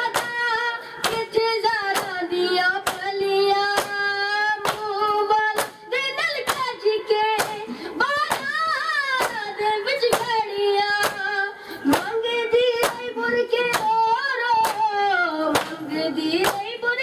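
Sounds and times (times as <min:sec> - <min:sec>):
hands slapping chests: 0:04.6 - 0:04.9, 0:07.4 - 0:07.6, 0:08.2 - 0:08.6, 0:15.5 - 0:15.8.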